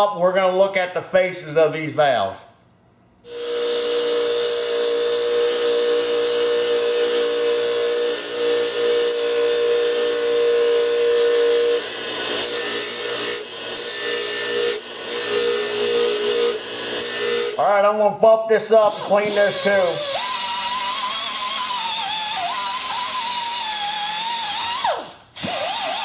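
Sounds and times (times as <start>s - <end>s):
wire wheel grinder scrubbing metal: 3.3s - 17.6s.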